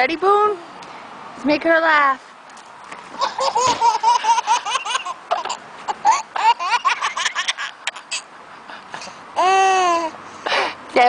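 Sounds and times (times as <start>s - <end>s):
baby laughing: 3.2s - 8.3s, 9.0s - 10.2s.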